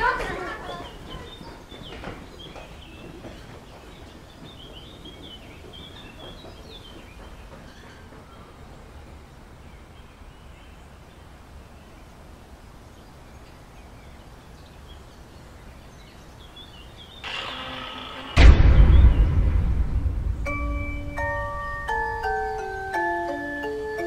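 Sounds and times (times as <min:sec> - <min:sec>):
small birds chirping: 0:00.0 - 0:17.4, 0:18.9 - 0:24.0
low background rumble: 0:18.3 - 0:22.2.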